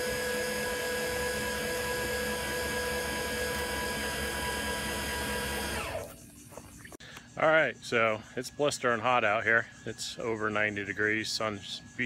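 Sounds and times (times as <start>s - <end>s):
electric motor whine: 0.0s - 6.7s.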